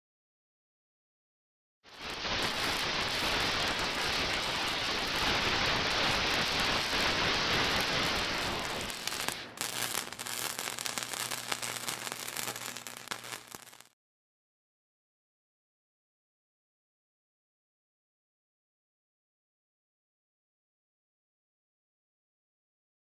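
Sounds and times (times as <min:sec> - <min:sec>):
electric arc welding sizzle: 0:01.9 - 0:14.0.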